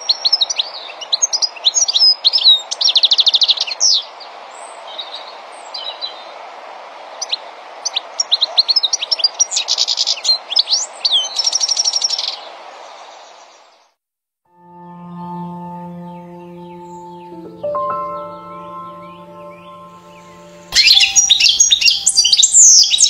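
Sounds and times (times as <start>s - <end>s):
low background noise: 14.9s - 23.0s
finch twittering: 16.0s - 23.0s.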